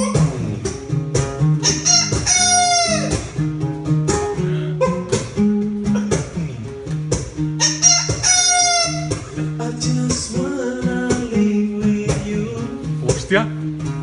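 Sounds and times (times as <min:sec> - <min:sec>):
man imitating chicken clucking: 0:00.0 - 0:00.4, 0:01.6 - 0:03.3, 0:04.4 - 0:05.2, 0:05.8 - 0:06.6, 0:07.6 - 0:09.6
acoustic guitar strumming: 0:00.0 - 0:14.0.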